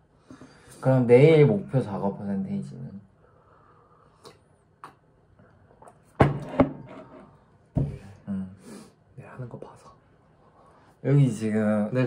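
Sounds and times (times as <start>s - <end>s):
mug knocking on table: 6.2s - 6.9s, 7.7s - 8.0s.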